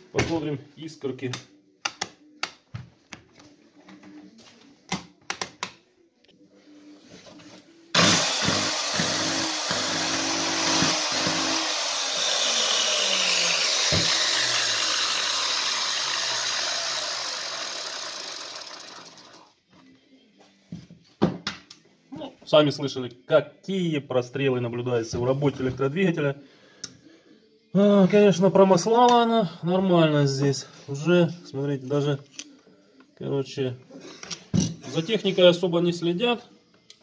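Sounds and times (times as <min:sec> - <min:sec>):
electric chainsaw motor running: 0:08.0 - 0:19.5.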